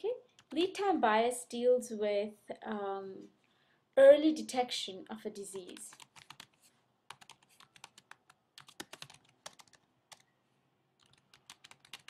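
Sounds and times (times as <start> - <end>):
faint keyboard typing: 0.2 - 0.7, 5.5 - 10.3, 11.0 - 12.0.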